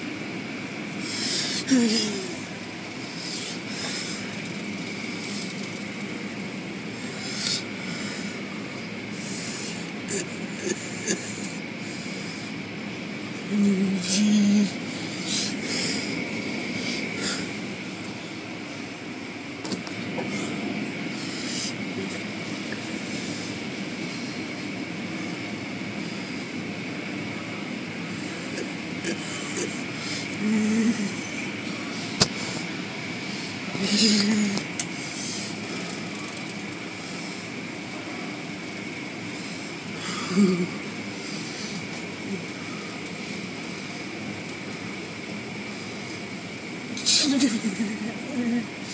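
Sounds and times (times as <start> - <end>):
car wash machinery drone: 0.0 - 48.9
faint high whine: 0.0 - 48.9.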